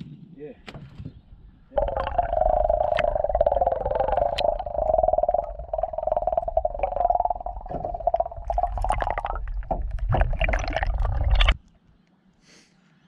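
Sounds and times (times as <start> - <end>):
underwater sloshing and gurgling: 1.7 - 11.7
steady hum: 1.8 - 11.6
underwater clicks and knocks: 1.8 - 11.7.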